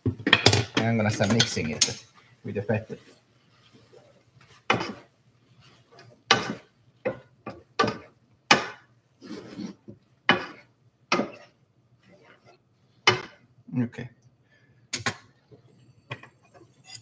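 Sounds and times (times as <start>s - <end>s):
utensil scraping and knocking pan: 4.6s - 5.1s.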